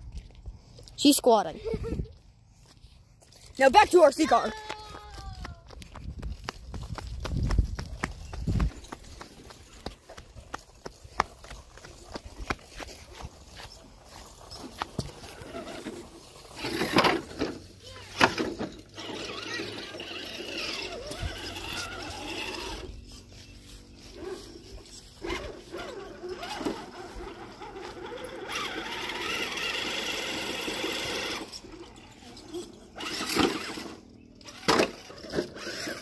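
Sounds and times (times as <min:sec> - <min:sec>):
electric motor and gears whining: 0:12.6 - 0:36.0.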